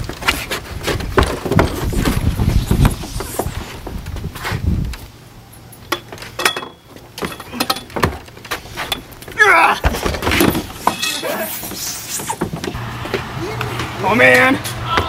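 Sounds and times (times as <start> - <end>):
person's wavering cry: 9.4 - 9.9.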